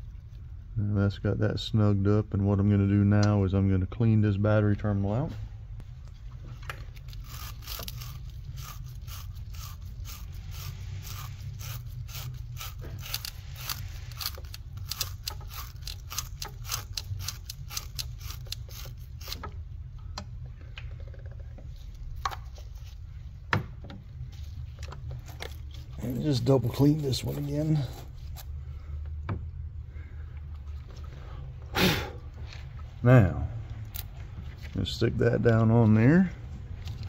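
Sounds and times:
brush scraping metal terminal: 0:25.4 - 0:28.5.

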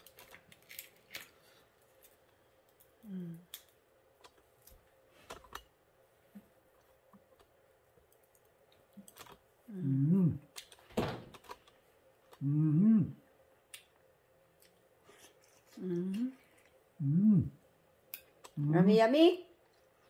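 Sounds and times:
man humming while eating: 0:03.0 - 0:03.5, 0:09.7 - 0:10.5, 0:12.4 - 0:13.3, 0:15.8 - 0:17.6.

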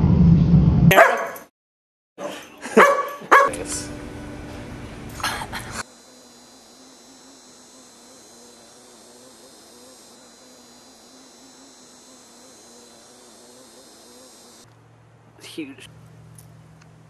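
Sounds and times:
low wavering buzz: 0:03.3 - 0:17.0
insects trilling: 0:05.2 - 0:14.7.

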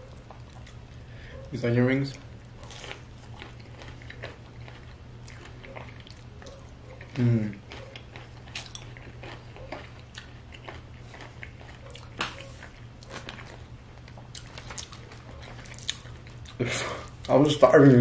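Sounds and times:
crunchy chewing: 0:00.0 - 0:17.4.

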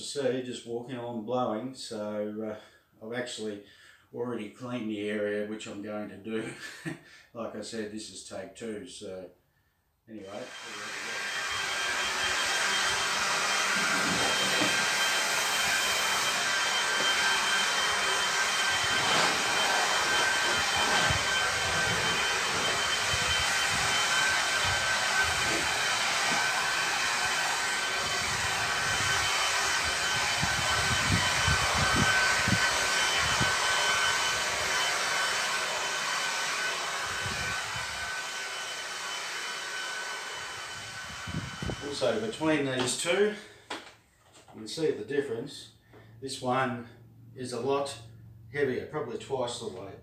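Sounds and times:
leaf blower running: 0:10.4 - 0:42.4.

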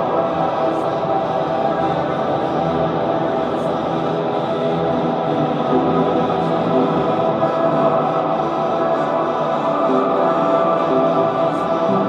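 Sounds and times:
ambient drone music: 0:00.0 - 0:12.0.

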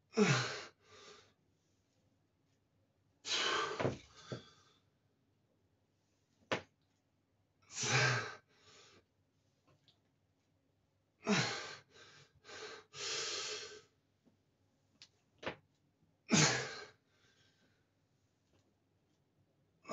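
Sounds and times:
man breathing hard: 0:00.2 - 0:01.4, 0:03.3 - 0:04.9, 0:11.3 - 0:13.9.

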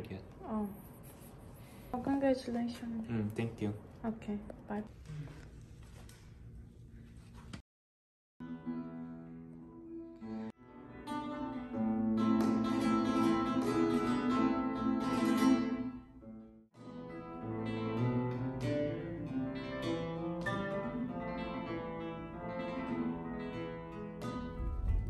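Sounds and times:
flamenco guitar: 0:08.4 - 0:25.0.

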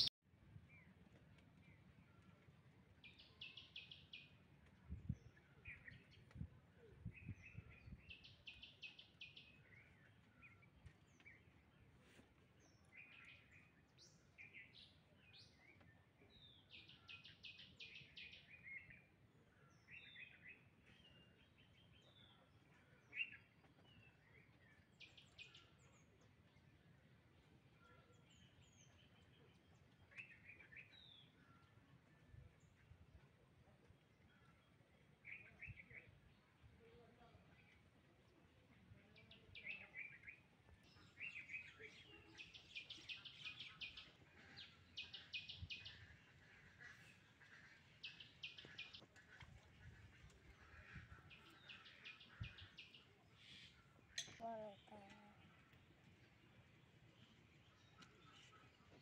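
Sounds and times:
birds chirping and trilling: 0:39.3 - 0:59.0.

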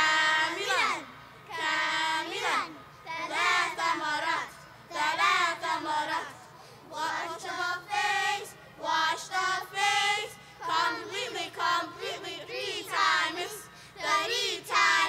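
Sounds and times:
children singing in unison: 0:00.0 - 0:15.0.

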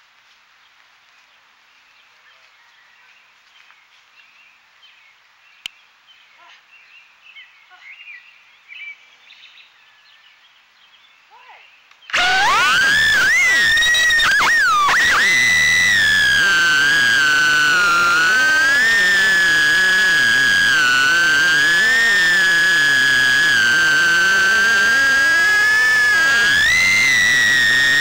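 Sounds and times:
small drone motors whining: 0:12.1 - 0:28.0.

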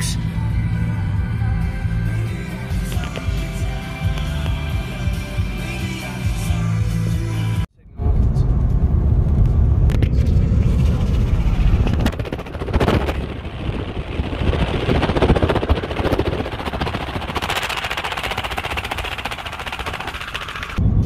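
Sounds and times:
road and tyre rumble: 0:07.9 - 0:21.0
rapid crackling rattle: 0:10.6 - 0:20.8.

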